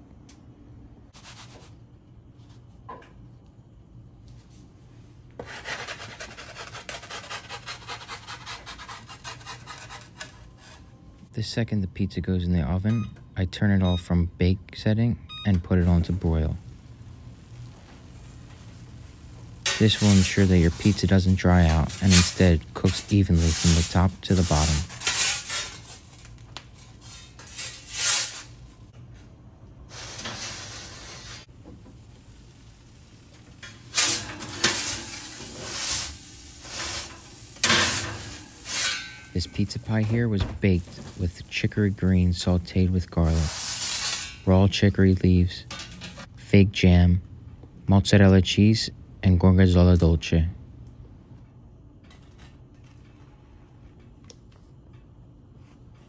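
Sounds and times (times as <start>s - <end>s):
wooden peel scraping metal: 19.7s - 28.5s, 43.3s - 44.5s.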